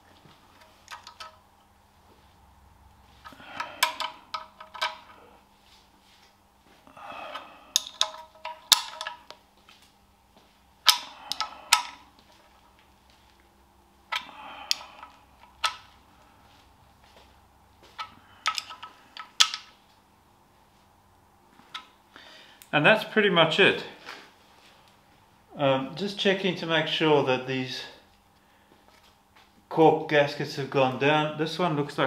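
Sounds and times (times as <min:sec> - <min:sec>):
spanner clicking on bolts: 0:03.6 - 0:05.1, 0:07.7 - 0:09.3, 0:18.0 - 0:19.7.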